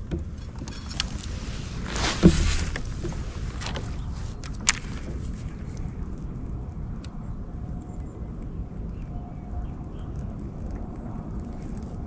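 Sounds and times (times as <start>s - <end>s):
gear thumping: 0.0s - 5.3s
wind rumble on microphone: 0.0s - 12.0s
light clicks: 2.7s - 6.1s.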